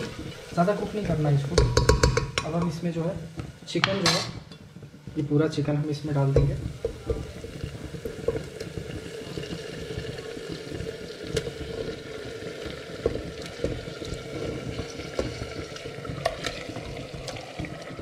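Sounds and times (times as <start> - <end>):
chicken sizzling in a pot: 0.0 - 18.0
utensil knocking against pot: 1.5 - 2.8, 6.3 - 7.3.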